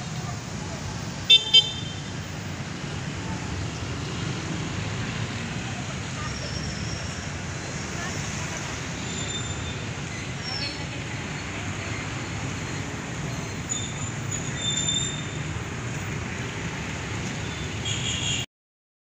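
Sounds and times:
passing traffic rumble: 0.0s - 18.4s
thin high squeals: 13.3s - 15.4s.

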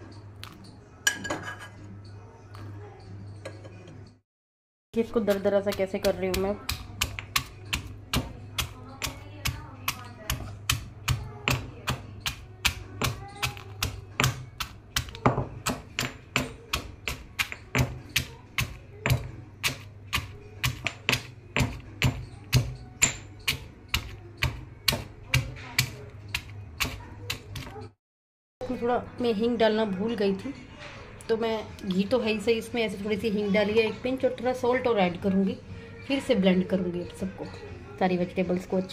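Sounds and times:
pounding in a stone mortar: 5.0s - 27.7s.

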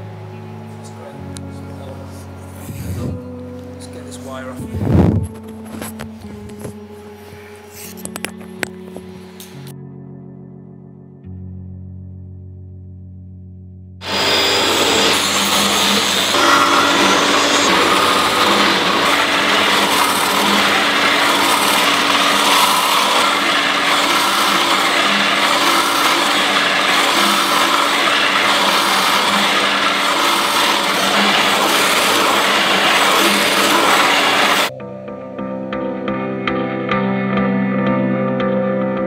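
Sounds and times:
loud factory machinery: 14.0s - 34.7s.

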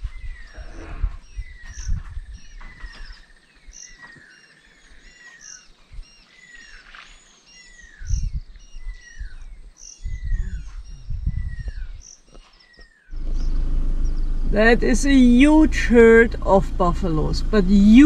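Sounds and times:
low rumbles: 13.1s - 18.0s.

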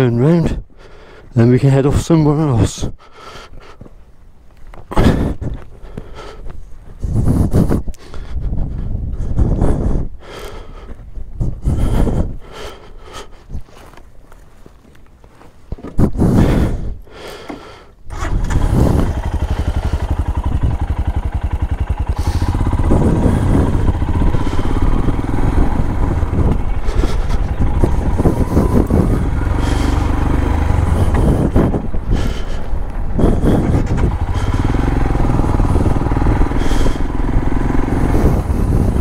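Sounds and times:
motorcycle starter: 17.4s - 39.0s
motorcycle engine running: 17.5s - 39.0s.

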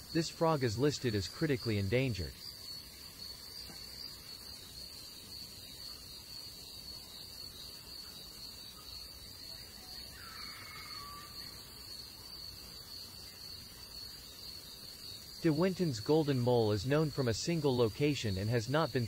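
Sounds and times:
insects trilling: 0.0s - 19.0s.

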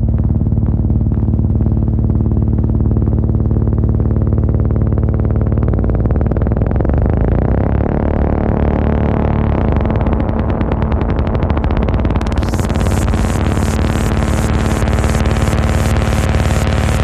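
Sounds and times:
techno music: 9.8s - 17.0s.

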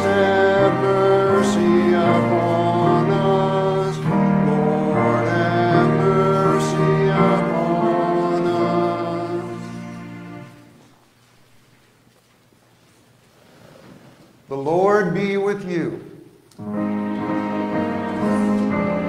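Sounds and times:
congregation singing: 0.0s - 10.8s, 16.6s - 19.0s
keyboard chords: 0.0s - 10.8s, 16.5s - 19.0s.

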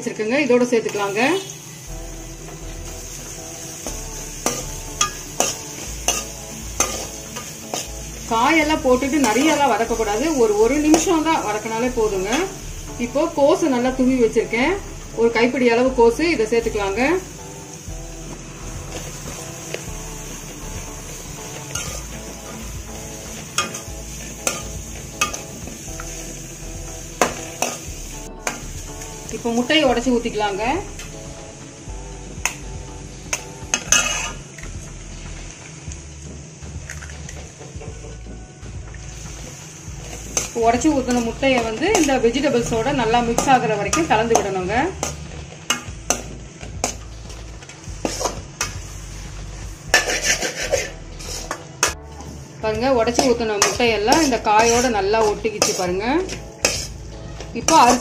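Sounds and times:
vegetables sizzling in oil: 0.0s - 58.0s
ladle scraping and clinking on pan: 21.7s - 22.6s, 33.3s - 34.4s, 48.0s - 48.8s, 49.9s - 52.0s, 53.1s - 58.0s.

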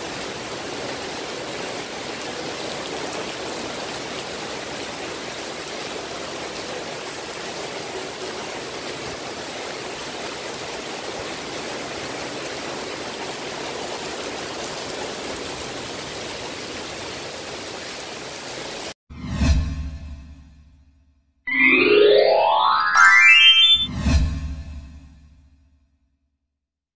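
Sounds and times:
heavy rain on paving: 0.0s - 19.0s.

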